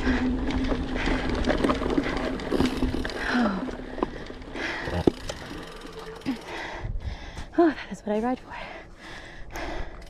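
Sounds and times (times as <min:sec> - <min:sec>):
bike tyres rumbling on dirt: 0:00.0 - 0:06.8
bike rattling and clicking: 0:00.0 - 0:07.4
wind buffeting microphone: 0:06.6 - 0:07.6.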